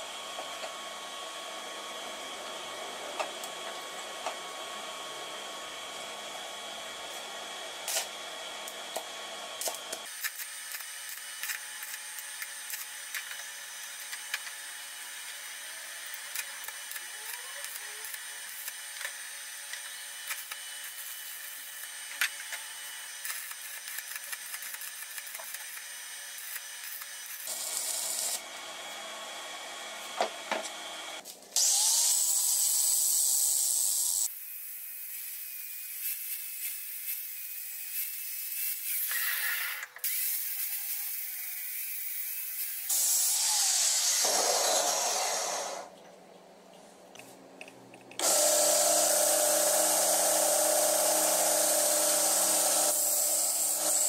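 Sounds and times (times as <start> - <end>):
welding arc crackling: 9.6 - 14.5, 15.1 - 28.4
angle grinder grinding steel: 9.6 - 29.1, 48.2 - 54.0.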